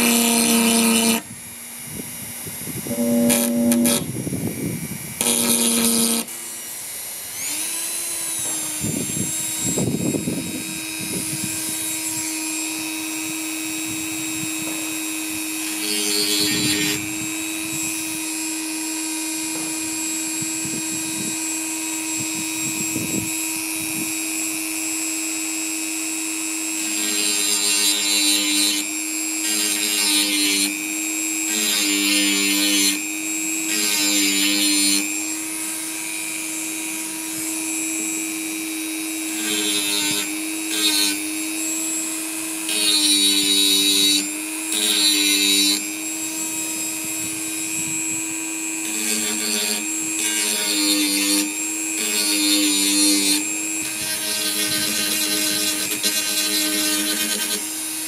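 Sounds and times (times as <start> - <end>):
rotary tool whining: 0.0 - 58.0
rotary tool grinding bone: 2.9 - 4.1, 31.4 - 33.0, 33.6 - 36.5, 39.3 - 41.2, 48.8 - 58.0.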